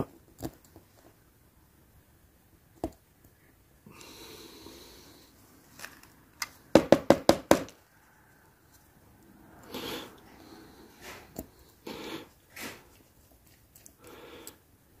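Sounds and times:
breath through the nose: 0:09.6 - 0:13.0.

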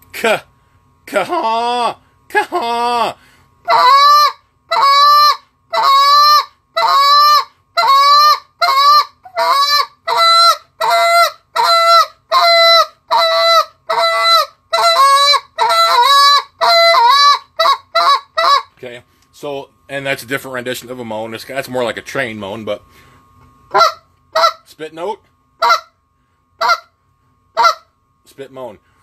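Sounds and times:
goose call moans: 0:01.1 - 0:18.7, 0:23.7 - 0:24.6, 0:26.6 - 0:26.9.

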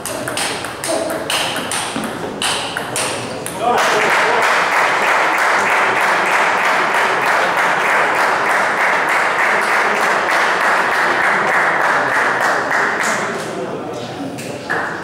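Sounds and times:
spectators clapping: 0:02.4 - 0:13.3.

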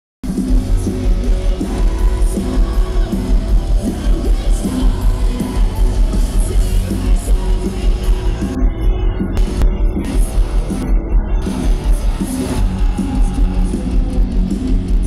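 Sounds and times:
live band playing through loudspeakers: 0:00.2 - 0:15.0
pounding beat: 0:09.4 - 0:15.0.

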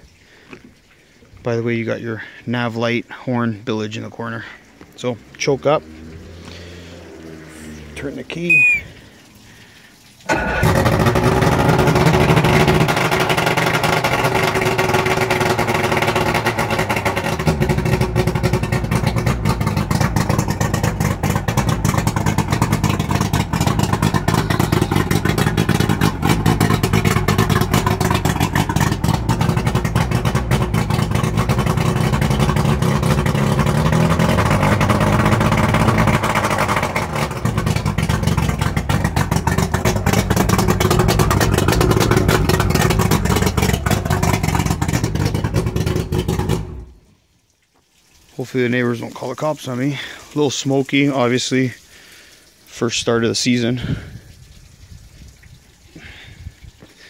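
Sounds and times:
outboard motor running: 0:10.3 - 0:47.0.

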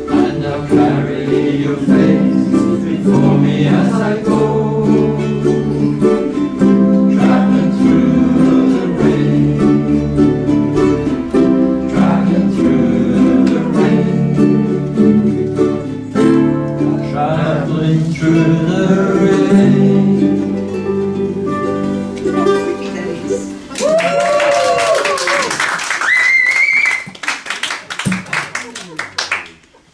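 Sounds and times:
people singing: 0:00.0 - 0:22.1
ukuleles strumming: 0:00.0 - 0:25.8.

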